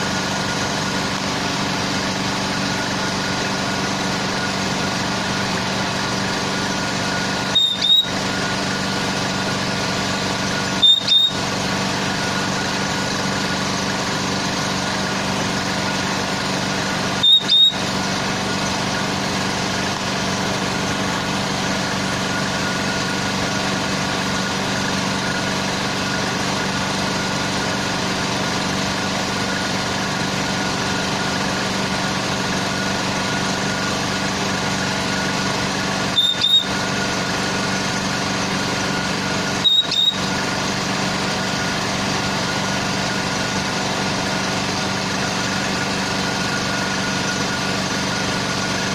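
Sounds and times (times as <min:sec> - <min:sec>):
machine hum: 0:00.0 - 0:48.9
high double chirp: 0:07.5 - 0:08.2, 0:10.8 - 0:11.4, 0:17.2 - 0:17.9, 0:36.2 - 0:36.8, 0:39.6 - 0:40.3.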